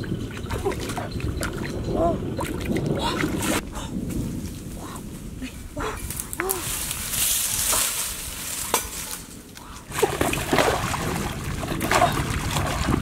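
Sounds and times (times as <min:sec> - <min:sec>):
muddy water splashing: 0:00.0 - 0:03.6, 0:09.9 - 0:13.0.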